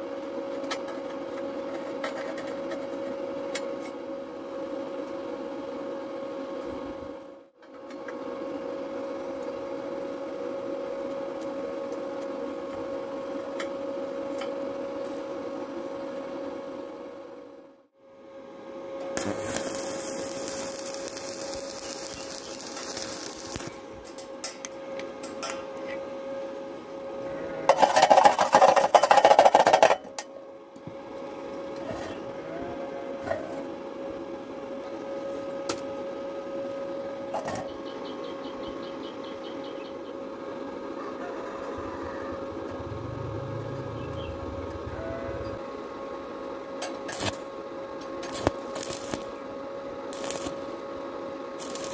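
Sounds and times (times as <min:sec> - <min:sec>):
steady hum: 0:08.6 - 0:41.0, 0:41.7 - 0:51.9
welding arc crackling and hissing: 0:19.2 - 0:24.2, 0:47.1 - 0:47.5, 0:48.2 - 0:49.5, 0:50.1 - 0:50.9, 0:51.5 - 0:51.9.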